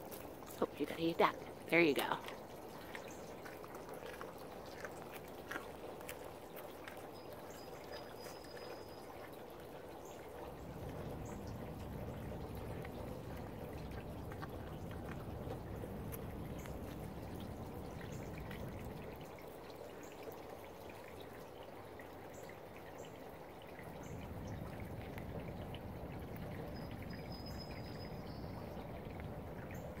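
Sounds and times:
deer chewing apples: 0:00.0 - 0:19.2.

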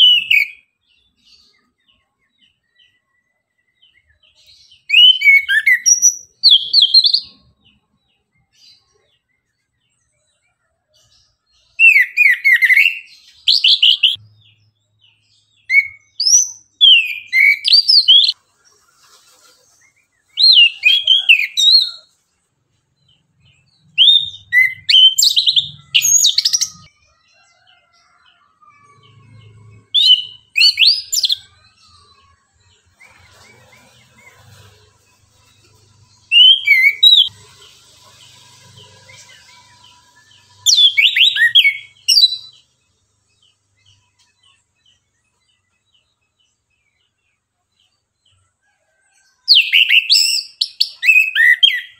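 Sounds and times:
thrush singing whistled phrases: 0:00.0 - 0:00.6, 0:04.8 - 0:07.3, 0:23.9 - 0:26.9, 0:30.0 - 0:31.5, 0:36.3 - 0:37.4, 0:40.6 - 0:42.5.

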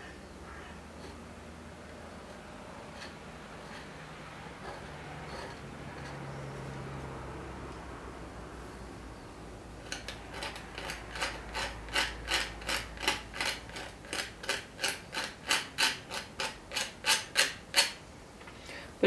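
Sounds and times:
tool scratching into wax paint: 0:02.2 - 0:06.2, 0:09.9 - 0:18.0.

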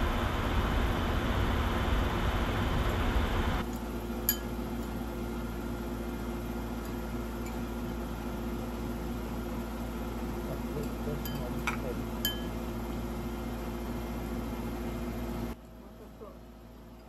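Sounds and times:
steady low hum: 0:00.0 - 0:17.0
spoon clinking on ceramic bowl: 0:04.3 - 0:04.5, 0:10.8 - 0:12.5.

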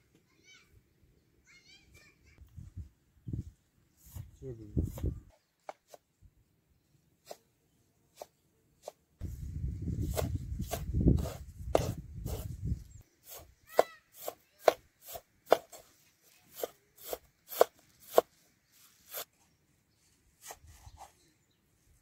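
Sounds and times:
cleaver chopping on wooden board: 0:10.1 - 0:12.4, 0:13.3 - 0:15.8, 0:16.6 - 0:18.3.

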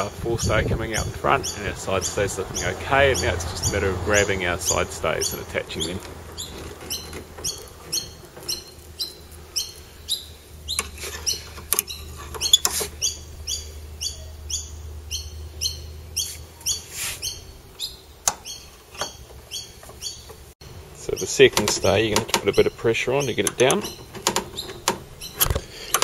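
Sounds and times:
small bird chirping: 0:00.0 - 0:25.9
metal fittings clicking: 0:23.4 - 0:26.0.

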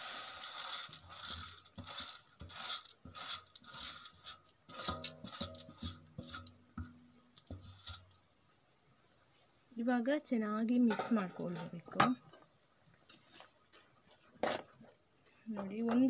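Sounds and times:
noodles sliding into boiling water: 0:00.0 - 0:09.7, 0:12.5 - 0:14.1.

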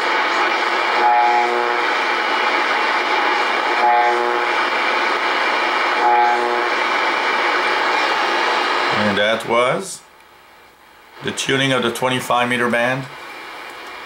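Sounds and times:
radio static hiss: 0:00.0 - 0:10.1, 0:10.7 - 0:14.0
brief buzzing radio tone: 0:06.0 - 0:06.8.

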